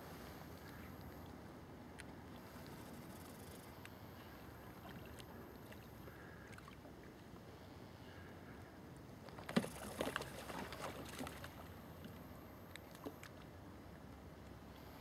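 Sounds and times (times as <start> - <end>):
faint lapping water: 0.0 - 15.0
splashes and knocks on plastic hull: 9.4 - 11.6.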